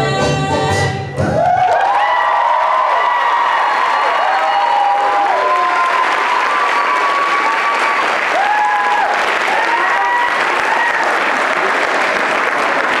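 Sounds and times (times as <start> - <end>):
people whooping and calling out: 1.3 - 11.3
audience applauding: 1.4 - 13.0.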